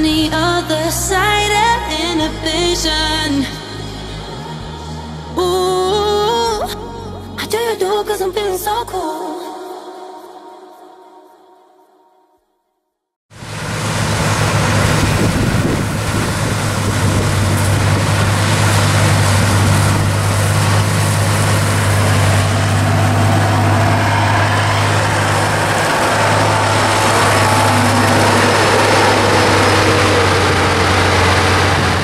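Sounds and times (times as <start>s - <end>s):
diesel engines running: 13.3s - 32.0s
wind on microphone: 14.5s - 32.0s.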